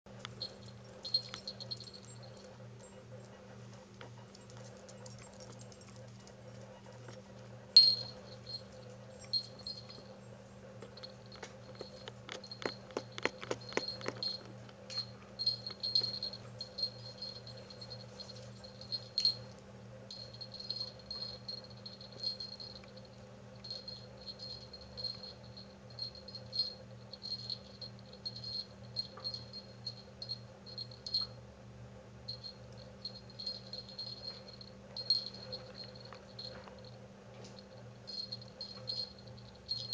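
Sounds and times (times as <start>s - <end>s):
jingle bell tinkling: 0.2s - 2.6s, 7.8s - 10.2s, 10.8s - 31.4s, 32.3s - 39.9s.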